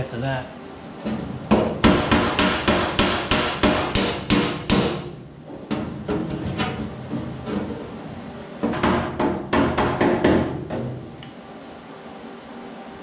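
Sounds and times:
hammer striking sheet steel: 1.8 - 5.2.

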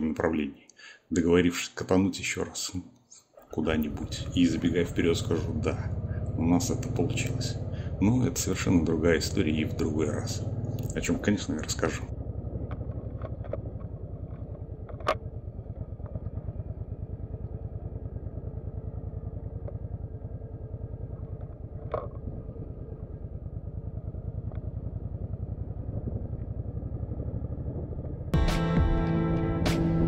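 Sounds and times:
motorcycle engine running: 3.4 - 30.0
sharp clicks: 12.6 - 15.3.

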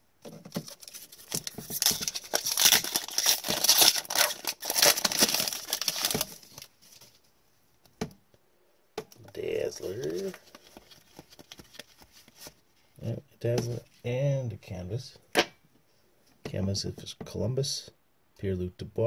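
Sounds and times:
foil wrapper crinkling and tearing: 0.7 - 7.0.

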